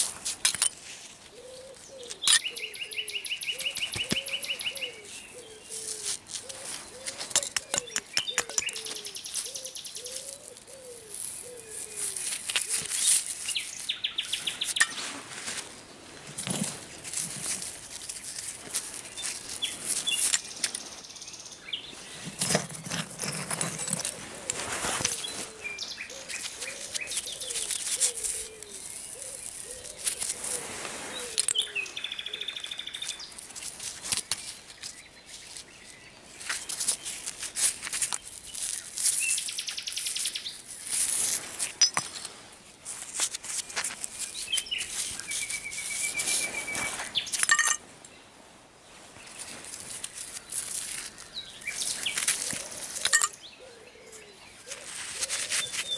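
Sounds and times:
hands scraping through soil: 0:00.0 - 0:21.2, 0:21.8 - 0:47.8, 0:48.9 - 0:53.4, 0:54.1 - 0:55.9
birds singing: 0:01.3 - 0:15.0, 0:19.0 - 0:33.4, 0:44.1 - 0:48.3, 0:49.2 - 0:55.9
dirt crumbling: 0:03.5 - 0:21.0, 0:21.8 - 0:31.9.

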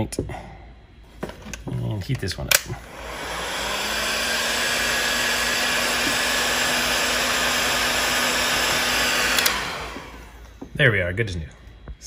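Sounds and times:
heat gun blowing: 0:02.5 - 0:10.7.

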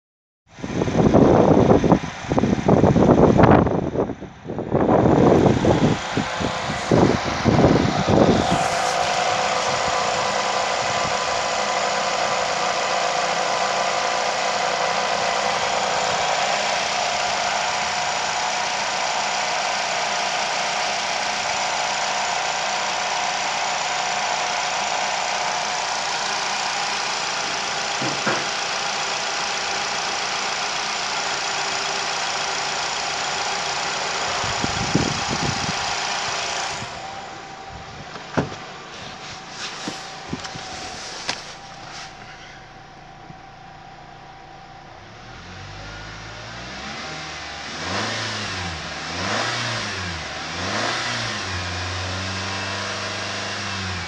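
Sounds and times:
car engine idling: 0:00.6 - 0:54.0
low thuds: 0:37.1 - 0:45.2.

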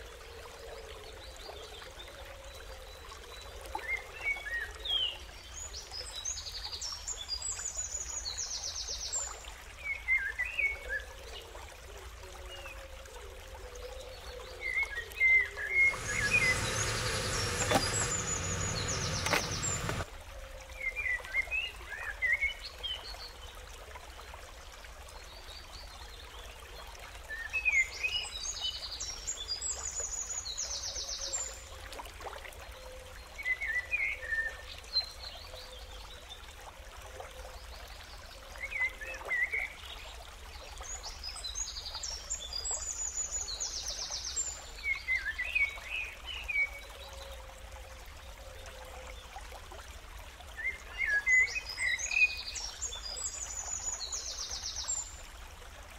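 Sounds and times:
birds chirping: 0:15.8 - 0:20.0
background hiss: 0:15.9 - 0:20.0.

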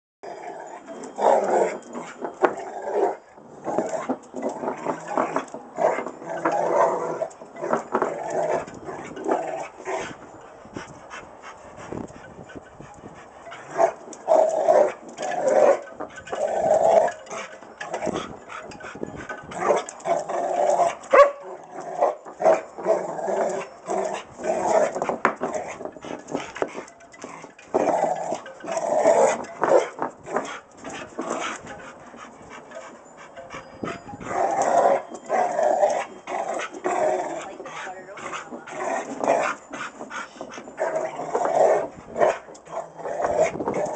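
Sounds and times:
dog growling: 0:00.3 - 0:10.2, 0:13.2 - 0:43.9
ball knocking on concrete: 0:25.0 - 0:25.9.

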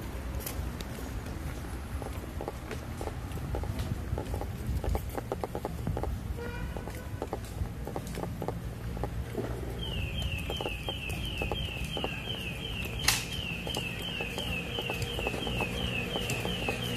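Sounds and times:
high falling chirp: 0:09.7 - 0:16.9
sharp click: 0:12.8 - 0:16.9.

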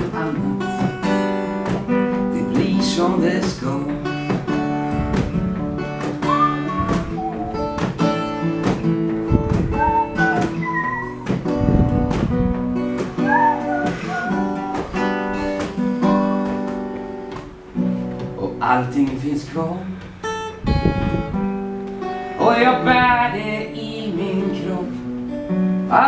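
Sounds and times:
acoustic guitar strumming: 0:00.0 - 0:26.0
whistled melody: 0:06.2 - 0:08.4, 0:09.6 - 0:11.9, 0:13.2 - 0:15.2.

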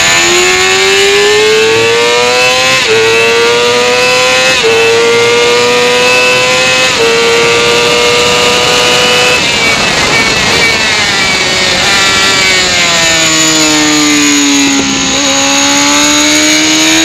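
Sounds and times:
motorcycle engine accelerating: 0:00.0 - 0:17.0
wind rush: 0:06.2 - 0:17.0.

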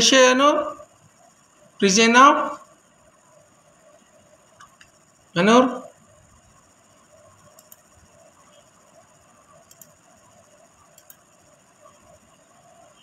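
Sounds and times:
faint pulsing background sound: 0:00.0 - 0:13.0.

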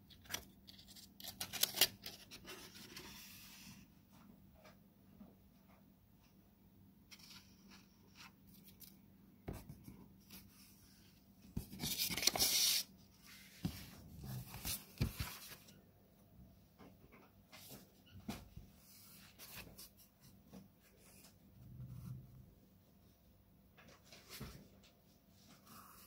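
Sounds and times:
paper rustling: 0:11.6 - 0:15.7.

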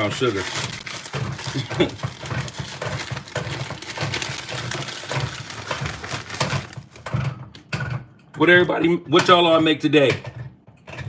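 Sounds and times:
kitchen rustling and clinking: 0:00.0 - 0:11.0.

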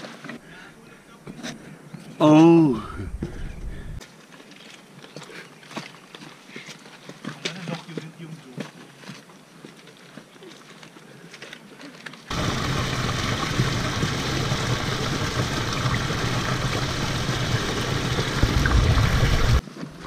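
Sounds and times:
waterfall rushing and splashing: 0:12.3 - 0:19.6.

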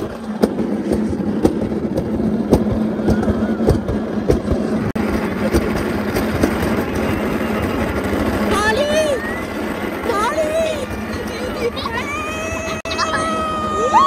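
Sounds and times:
wheels knocking: 0:00.0 - 0:12.8
sled rumbling along metal rail: 0:00.0 - 0:14.0.

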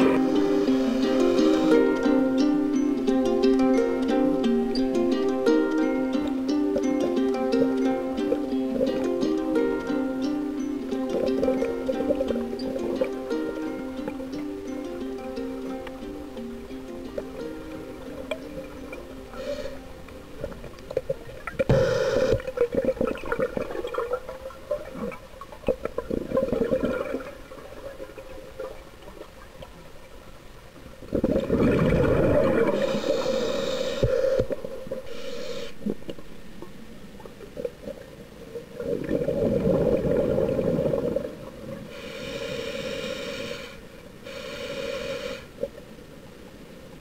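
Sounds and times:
bubbling underwater exhalation: 0:31.1 - 0:36.3.

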